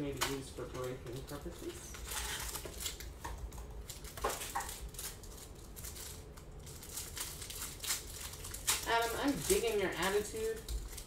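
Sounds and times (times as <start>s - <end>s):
plastic wrapper crinkling: 0.0s - 11.0s.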